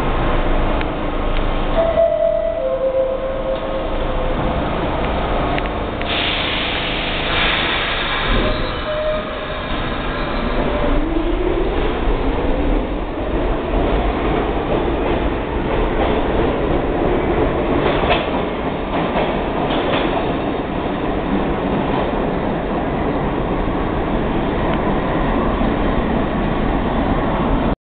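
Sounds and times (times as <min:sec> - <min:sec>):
wheels rumbling on rail: 0:00.0 - 0:27.8
wheels clacking on rail joints: 0:13.7 - 0:22.2.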